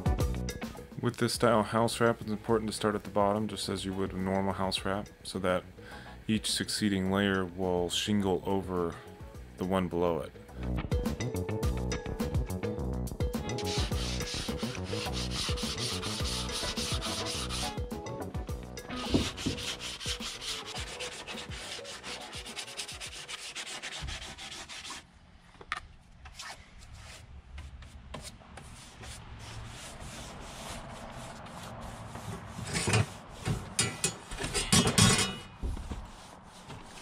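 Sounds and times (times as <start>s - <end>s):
sanding block rubbing plywood: 13.5s - 17.8s, 18.8s - 25.0s, 26.9s - 34.3s, 35.6s - 37.0s.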